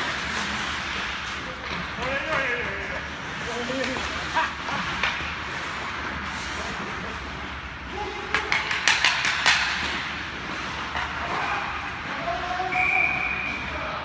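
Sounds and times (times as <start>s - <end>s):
hockey sticks and puck clacking: 0.0s - 14.0s
skates hissing on ice: 3.3s - 7.2s.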